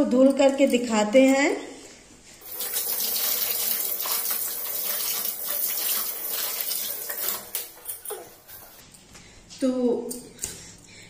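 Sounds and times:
tap water splashing into steel sink: 2.4 - 8.2.

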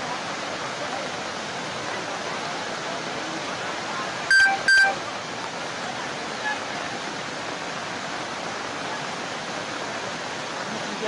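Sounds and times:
floodwater rushing: 0.0 - 11.0
short electronic beeps: 4.3 - 5.0.

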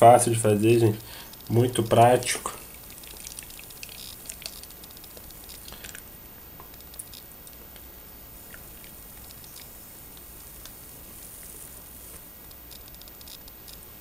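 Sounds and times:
wet slurry crackling through sieve: 1.4 - 6.0
tiny pops: 2.7 - 13.9.

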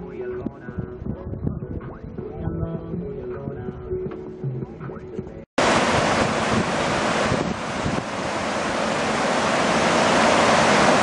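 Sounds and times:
waterfall rushing over rocks: 5.6 - 11.0.

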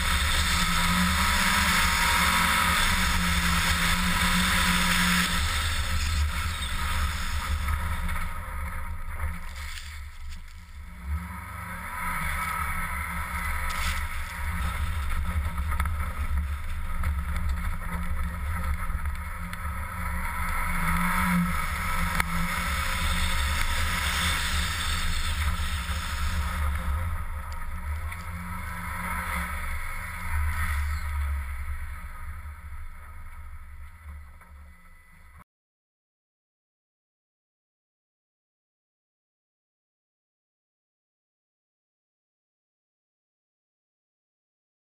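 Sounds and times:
car engine: 0.0 - 35.3.

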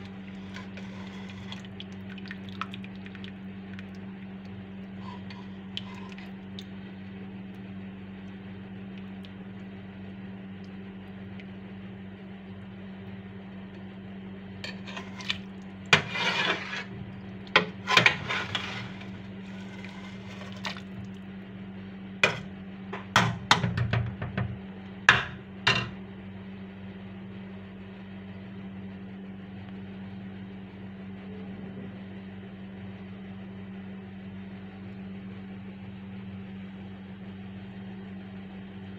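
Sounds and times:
steady low hum: 0.0 - 38.9
metal spoon scraping steel pot: 0.1 - 1.6, 14.7 - 15.4, 16.0 - 16.9, 17.6 - 20.8.

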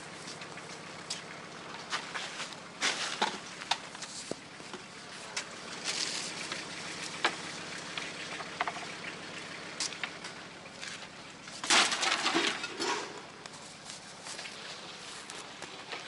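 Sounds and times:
junk clattering onto a pile: 10.8 - 13.4.

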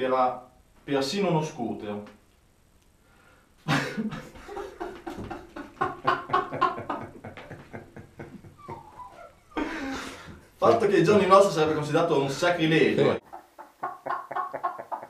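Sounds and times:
man laughing hard: 3.7 - 10.2.

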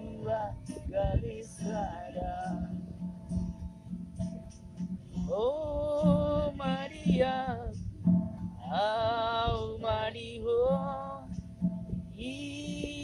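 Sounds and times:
person singing: 0.0 - 2.8, 5.2 - 7.8, 8.6 - 11.4, 12.2 - 13.0
strummed acoustic guitar: 0.0 - 13.0.

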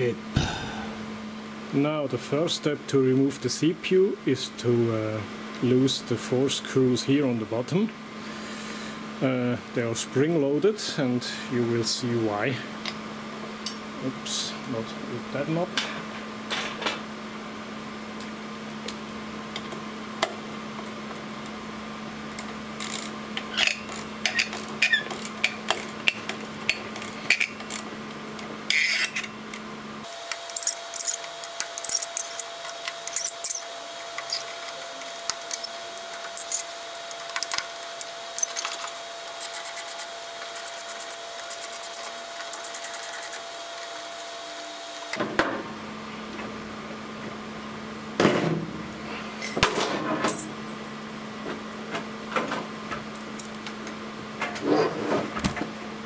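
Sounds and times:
screwdriver clicking on metal: 30.1 - 43.9.

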